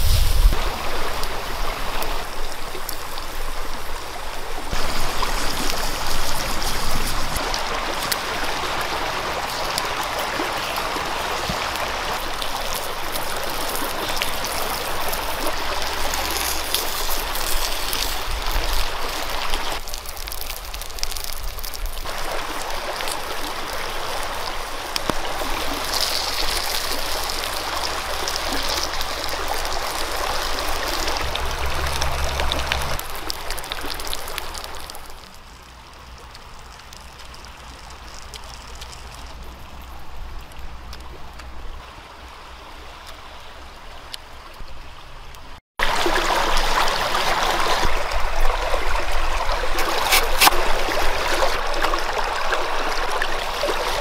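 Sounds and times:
stream water rushing and trickling: 0.0 - 54.0.

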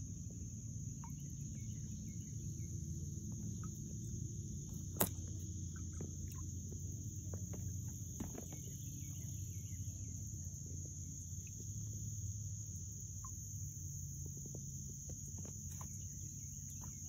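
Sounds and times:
insect chorus drone: 0.0 - 17.0
faint bird chirps: 0.8 - 12.4.

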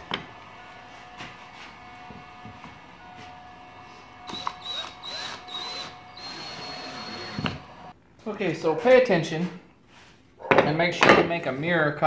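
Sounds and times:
cordless drill whirring: 1.8 - 7.9.

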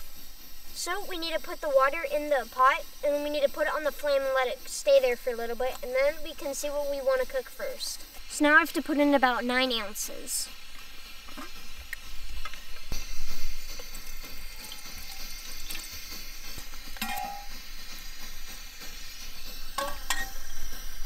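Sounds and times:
camping stove rushing: 0.0 - 21.0
water pouring into a pot: 12.8 - 17.5.

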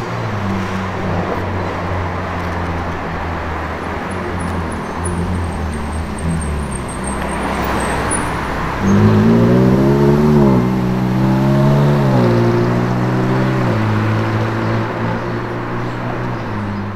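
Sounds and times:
car engine pulling hard: 0.0 - 16.9
traffic noise: 0.0 - 16.9.

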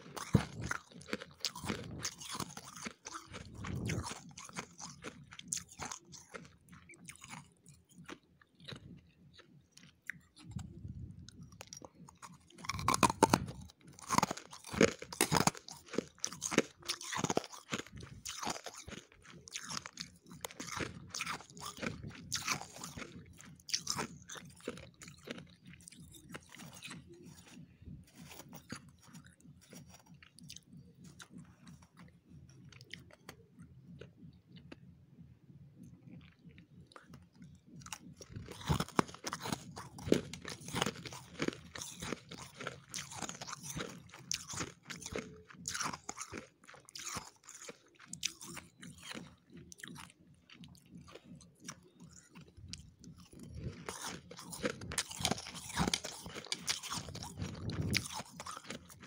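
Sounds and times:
frost being chewed: 0.0 - 34.9, 35.8 - 59.0.

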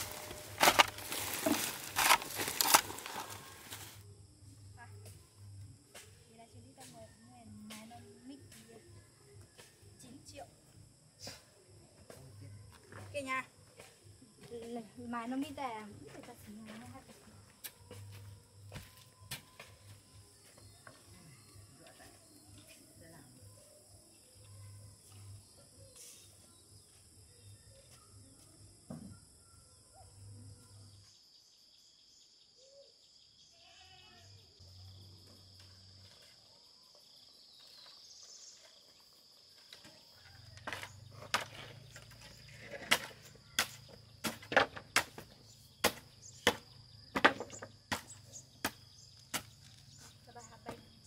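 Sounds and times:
insects buzzing: 0.0 - 6.8.

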